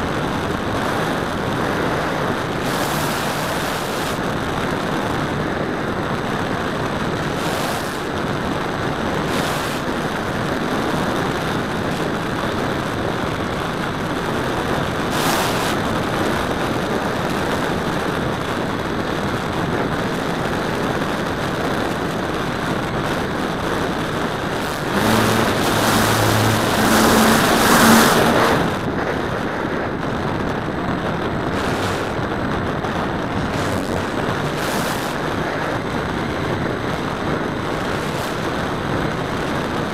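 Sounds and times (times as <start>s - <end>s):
model airplane propeller: 0.0s - 39.9s
wind rush: 0.0s - 39.9s
low hum: 24.2s - 29.1s.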